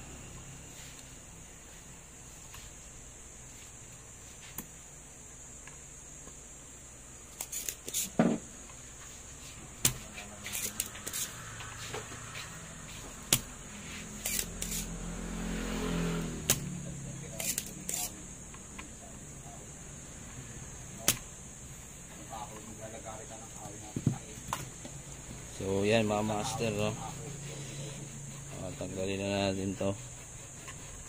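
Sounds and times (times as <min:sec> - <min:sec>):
desoldering pump snapping: 0:09.8 - 0:11.2, 0:16.4 - 0:16.7, 0:17.4 - 0:18.8, 0:21.0 - 0:21.3.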